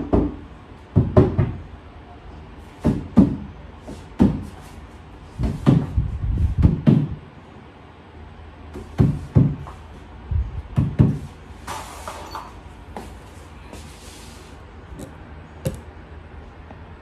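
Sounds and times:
hammer knocking on wooden panels: 0.0s - 1.6s, 2.8s - 3.5s, 4.2s - 4.5s, 5.4s - 6.0s, 6.6s - 7.2s, 8.8s - 9.7s, 10.8s - 11.2s.

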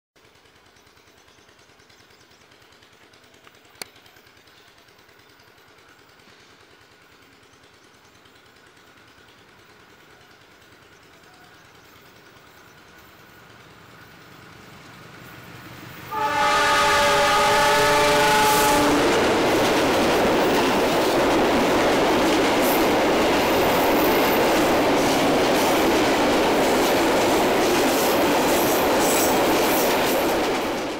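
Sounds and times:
clickety-clack of wheels on rail joints: 0.2s - 30.9s
diesel locomotive running: 0.2s - 30.9s
multi-tone train horn: 16.1s - 19.5s.

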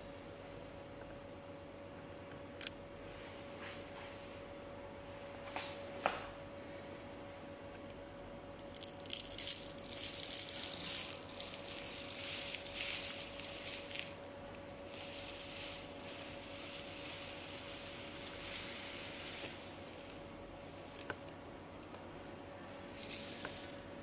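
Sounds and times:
gritty scraping of granules: 9.0s - 21.3s.

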